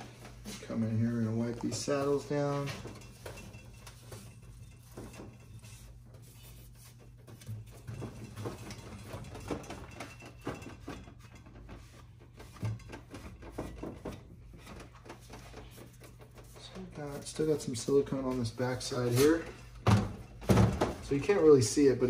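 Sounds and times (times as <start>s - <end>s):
cloth rag rubbing metal: 0.6s - 7.8s.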